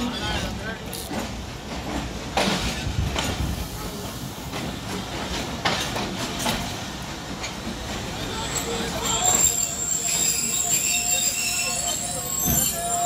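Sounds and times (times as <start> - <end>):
clacks over rail joints: 0.0 - 9.5
train wheels rumbling on rails: 0.0 - 13.0.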